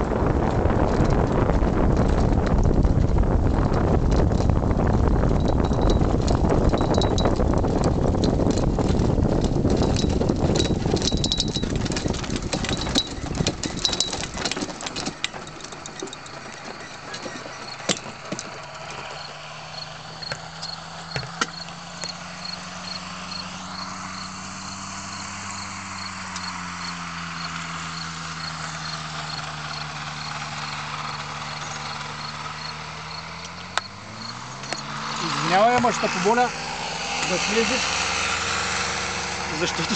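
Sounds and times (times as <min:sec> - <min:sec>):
knocks and bumps: 0:00.0 - 0:24.8, 0:26.3 - 0:38.3
engine idling: 0:00.0 - 0:39.9
wheels rolling on grass: 0:00.0 - 0:39.9.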